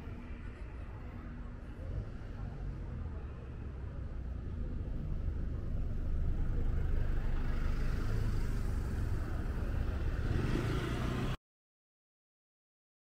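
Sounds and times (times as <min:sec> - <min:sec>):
low rumble of traffic: 0:00.0 - 0:11.4
car passing by: 0:06.5 - 0:11.4.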